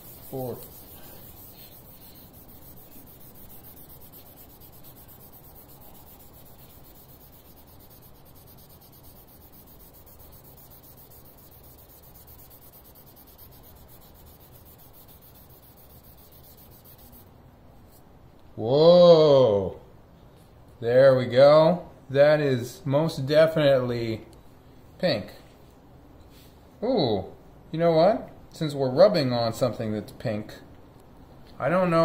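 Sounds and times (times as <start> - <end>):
swab scratchy rubbing on paint: 0.0 - 17.2.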